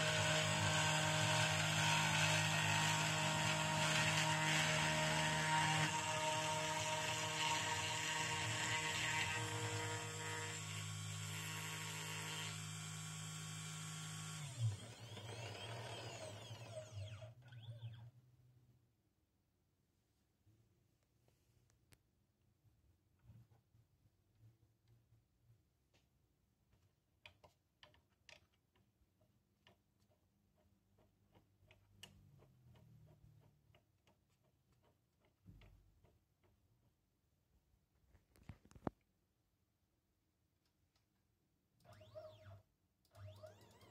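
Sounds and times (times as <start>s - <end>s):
router spindle humming and whining: 0.0s - 17.3s.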